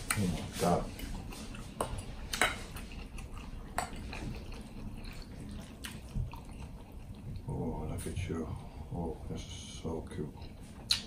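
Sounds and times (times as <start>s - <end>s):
wet chewing: 0.0s - 7.7s.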